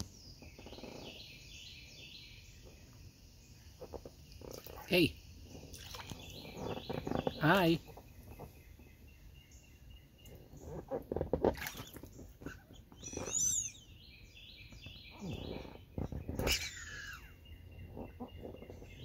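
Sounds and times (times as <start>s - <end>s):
birds chirping: 0.0s - 19.0s
water splashing in a pool: 3.8s - 8.4s, 10.7s - 13.5s.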